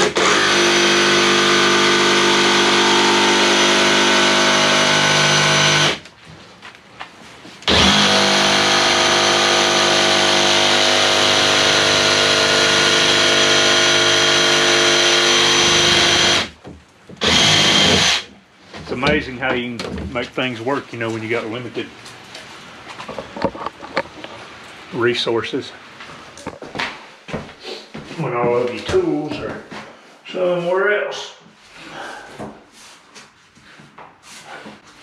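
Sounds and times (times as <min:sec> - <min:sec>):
jigsaw cutting plank: 0:00.0 - 0:06.0, 0:07.7 - 0:16.5, 0:17.2 - 0:18.3.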